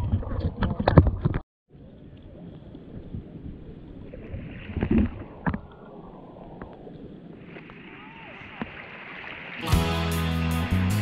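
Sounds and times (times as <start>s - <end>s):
sea water sloshing: 2.4s - 9.7s.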